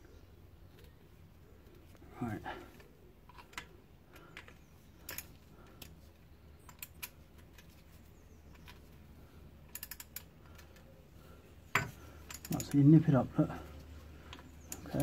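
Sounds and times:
metallic clicks of socket on bolts: 0:09.6 - 0:10.8, 0:12.2 - 0:12.9, 0:14.3 - 0:15.0.

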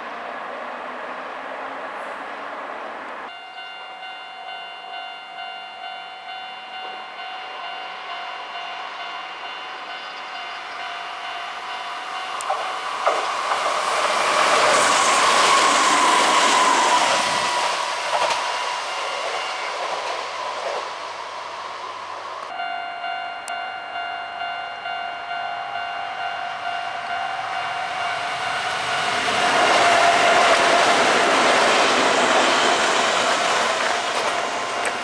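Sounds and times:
train rumble and wheel clatter: 0:00.0 - 0:35.0
train whine: 0:00.0 - 0:35.0
level crossing alarm ringing: 0:03.3 - 0:13.5, 0:22.5 - 0:31.3.

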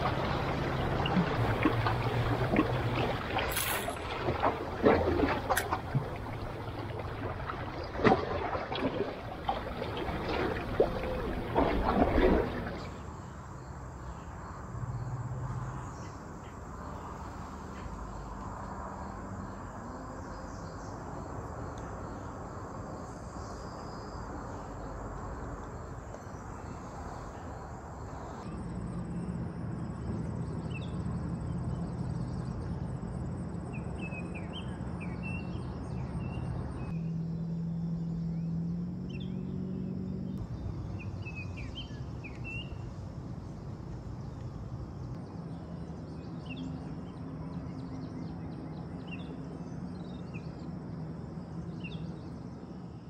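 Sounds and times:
low hum: 0:00.0 - 0:13.3.

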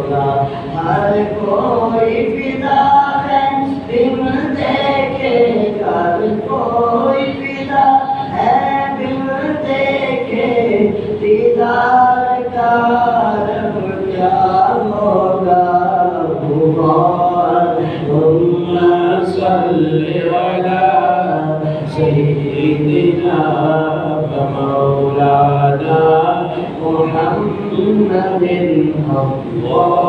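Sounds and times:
man chanting into microphone: 0:00.0 - 0:30.0.

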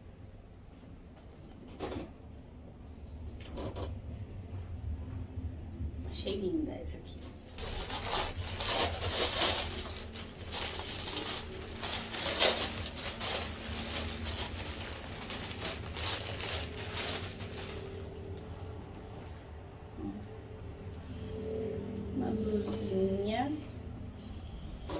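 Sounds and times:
plastic packaging rustling: 0:07.6 - 0:19.0.

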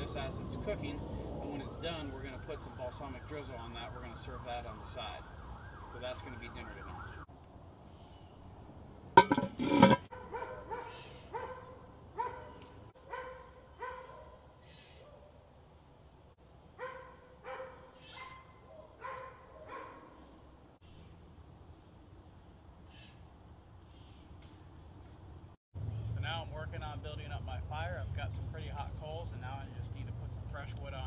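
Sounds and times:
dog barking: 0:10.1 - 0:15.4, 0:16.8 - 0:20.2.

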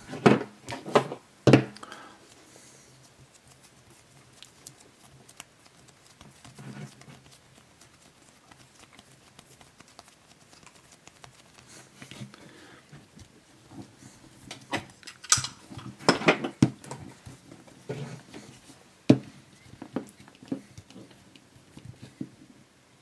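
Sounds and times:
fingers rubbing dough: 0:02.2 - 0:14.3.

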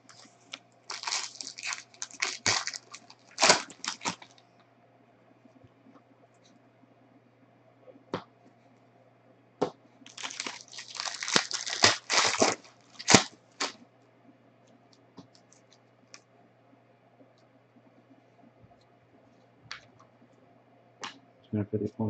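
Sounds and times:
plastic wrapper tearing and crinkling: 0:00.0 - 0:00.3, 0:00.9 - 0:04.4, 0:10.1 - 0:13.8.

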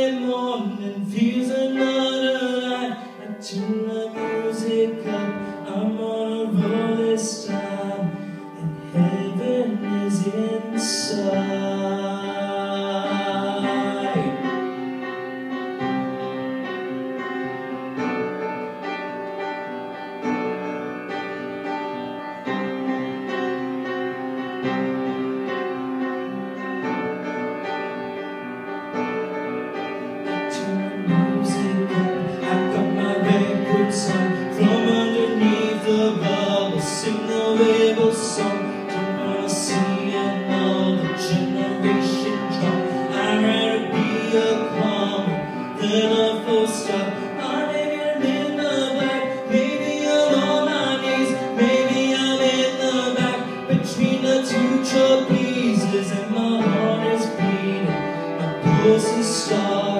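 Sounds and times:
man singing: 0:00.0 - 0:15.1, 0:30.2 - 0:59.9
pop backing music with piano: 0:00.0 - 0:59.9.

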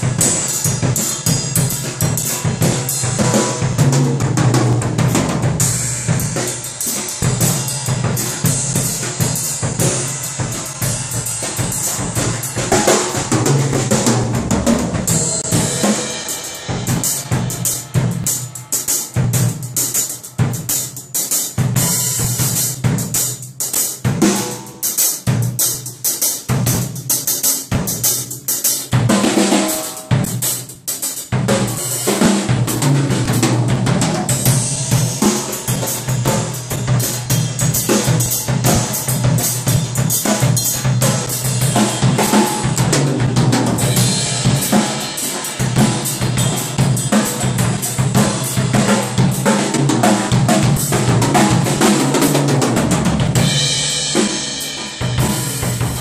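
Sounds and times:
drum kit played with sticks: 0:00.0 - 0:56.0
cymbals ringing: 0:15.0 - 0:20.6.

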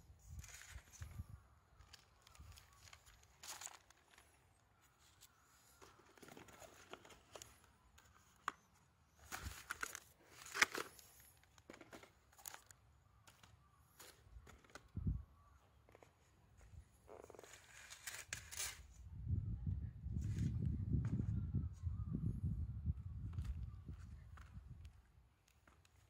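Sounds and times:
newspaper rustling and crinkling: 0:00.3 - 0:15.0, 0:17.1 - 0:18.9.

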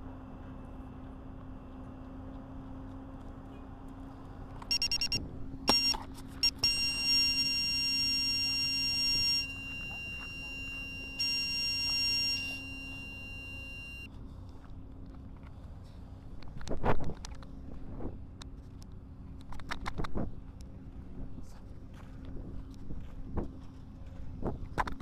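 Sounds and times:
steady low hum: 0:02.8 - 0:19.4
electronic beeping: 0:04.7 - 0:14.1.

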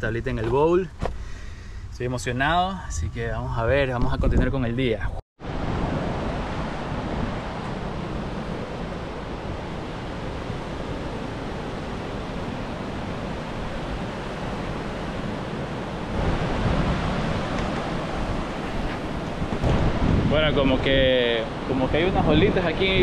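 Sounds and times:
wind rumbling on microphone: 0:00.0 - 0:23.0
ocean surf washing onto beach: 0:05.4 - 0:23.0.

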